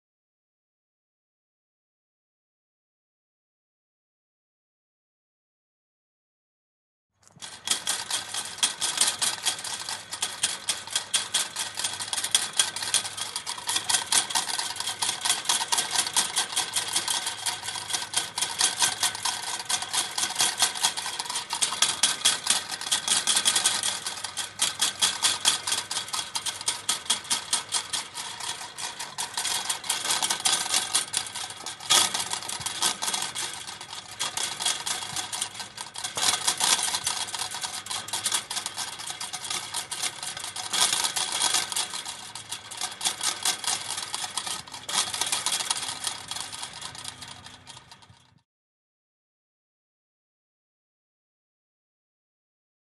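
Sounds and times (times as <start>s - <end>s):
chain link fence rattling: 7.2s - 48.3s.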